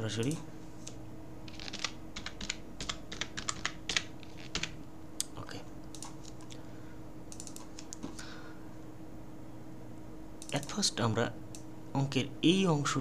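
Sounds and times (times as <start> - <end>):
steady low hum: 0.0 - 13.0
keyboard typing: 1.5 - 4.8, 7.3 - 8.0.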